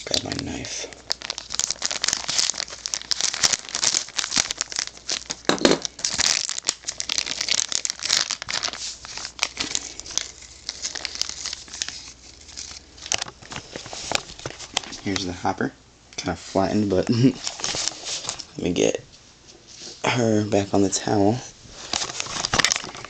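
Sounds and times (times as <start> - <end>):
packaging crinkling and tearing: 0.0 - 15.4, 17.4 - 18.6, 21.7 - 23.0.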